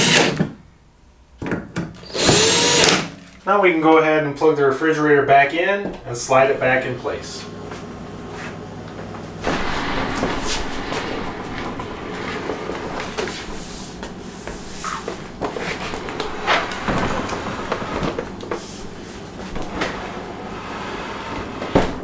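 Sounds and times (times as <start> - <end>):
refrigerator rollers rumbling: 7.1 - 22.0.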